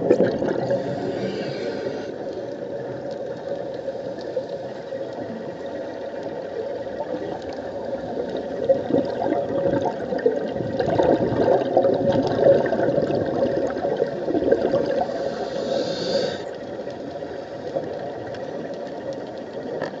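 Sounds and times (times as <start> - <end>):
bubbles gurgling underwater: 0.0 - 1.3, 5.4 - 15.7.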